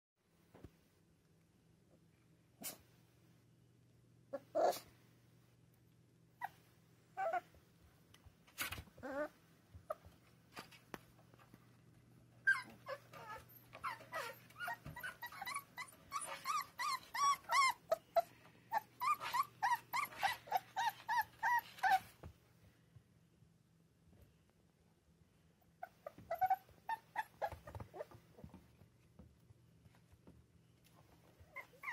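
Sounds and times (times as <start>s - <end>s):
puppies whimpering and yelping: 6.4s - 7.6s, 9.0s - 10.0s, 12.4s - 22.2s, 25.8s - 28.2s, 31.4s - 31.9s.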